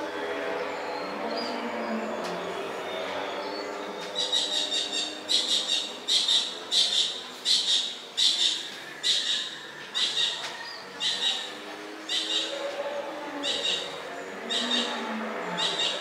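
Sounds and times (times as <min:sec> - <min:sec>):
animal chirping: 0:04.2 - 0:12.6, 0:13.4 - 0:16.0.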